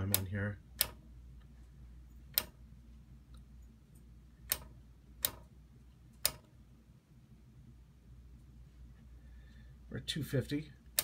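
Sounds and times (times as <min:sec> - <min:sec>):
selector switch clicks: 0:00.0 - 0:01.0, 0:02.3 - 0:02.6, 0:04.4 - 0:05.5, 0:06.2 - 0:06.5.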